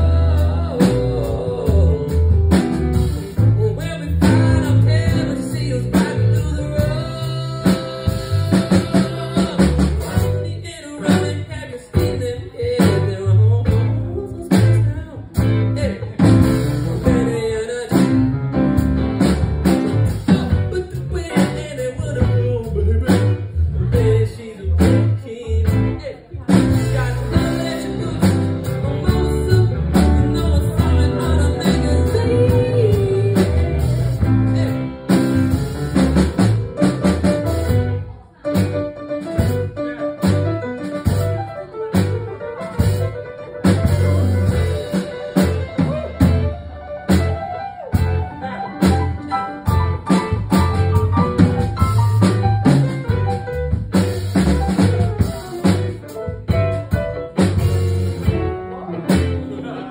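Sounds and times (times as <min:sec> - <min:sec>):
man singing: 0:00.0 - 0:19.0, 0:19.9 - 0:38.6, 0:54.6 - 0:59.9
upright piano: 0:00.0 - 0:59.9.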